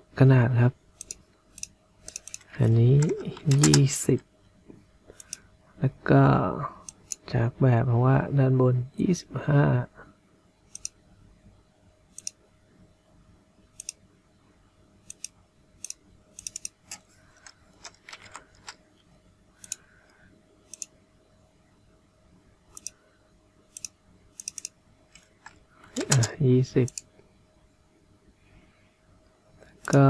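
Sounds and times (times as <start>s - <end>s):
faint steady hum: 0.0s - 30.0s
computer mouse clicks: 1.0s - 3.9s, 5.1s - 5.4s, 6.8s - 7.2s, 10.7s - 11.0s, 12.1s - 12.4s, 13.8s - 14.0s, 15.0s - 18.8s, 19.6s - 19.9s, 20.7s - 21.0s, 22.7s - 23.0s, 23.7s - 27.1s.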